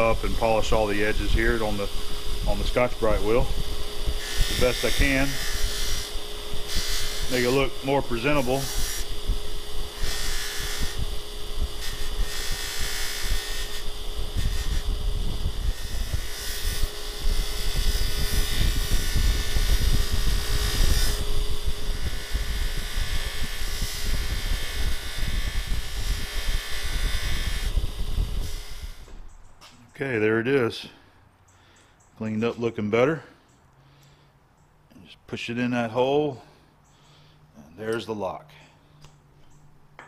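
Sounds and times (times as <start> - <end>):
abrasive wheel motor humming: 0.0 - 29.7.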